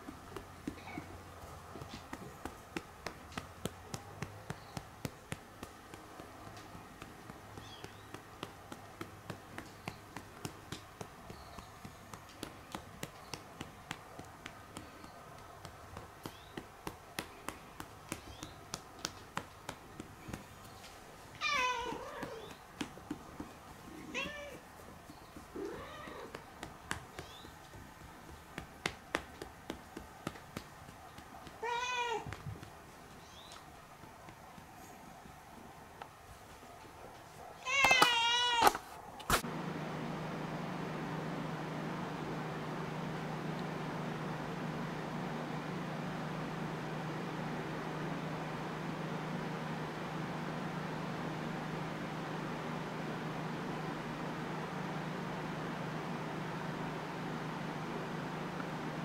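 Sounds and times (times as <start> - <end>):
hand patting cat: 0.0 - 36.6, 37.7 - 59.0
cat meowing: 21.4 - 22.5.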